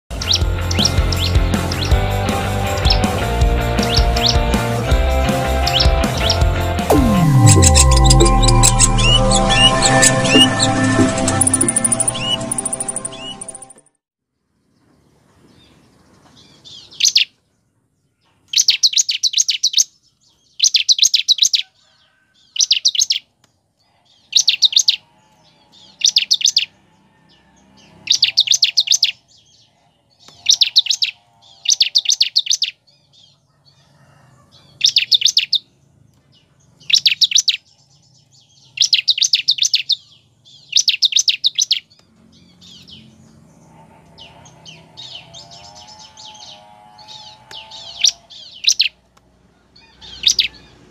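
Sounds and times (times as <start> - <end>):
bird rapid high chirping: 0.2 - 2.0, 5.6 - 13.7, 34.8 - 35.7, 36.8 - 37.7, 38.6 - 42.0, 47.5 - 49.0.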